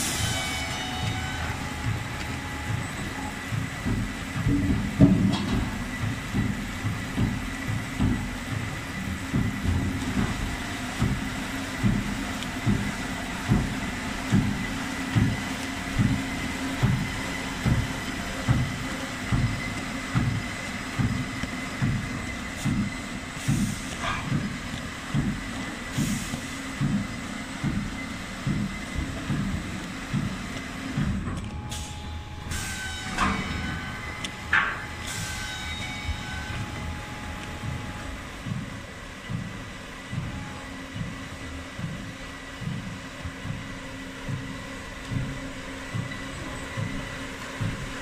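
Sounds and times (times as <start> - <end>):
machinery steady high tone: 0.0 - 6.6, 31.0 - 41.9
low regular machine thump: 1.0 - 48.0.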